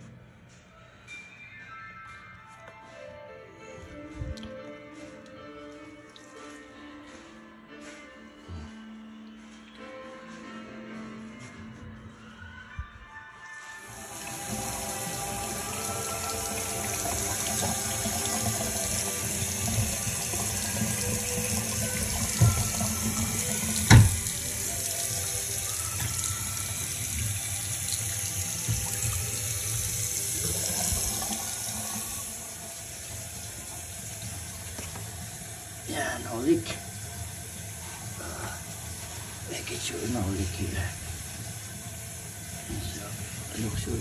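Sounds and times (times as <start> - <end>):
faucet water running into sink: 13.8 - 44.0.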